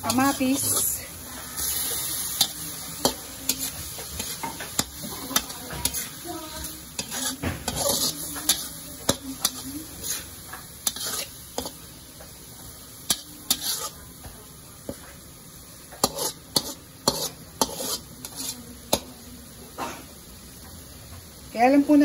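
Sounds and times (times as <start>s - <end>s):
metal spatula scraping a wok: 0.0s - 11.8s, 13.0s - 14.1s, 15.9s - 19.0s
light sizzle: 0.0s - 22.0s.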